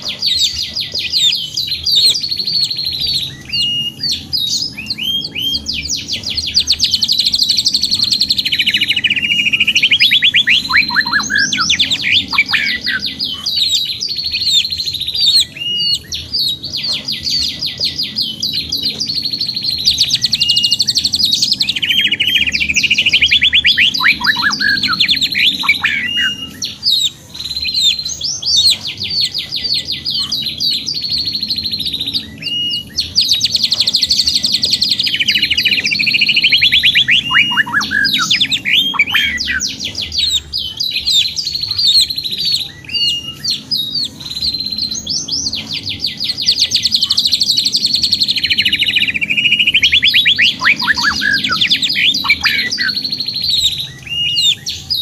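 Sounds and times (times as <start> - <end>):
canary singing trills: 0.0 - 55.0.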